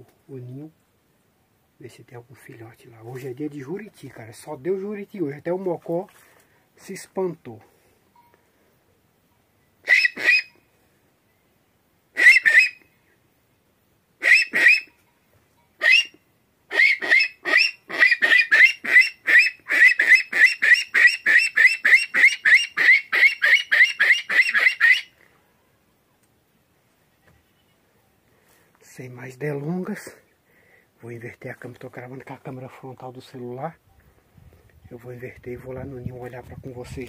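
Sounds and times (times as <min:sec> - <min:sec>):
animal call whistle squeaks: 0:09.8 - 0:10.6, 0:12.2 - 0:12.8, 0:14.2 - 0:15.0, 0:15.8 - 0:25.1.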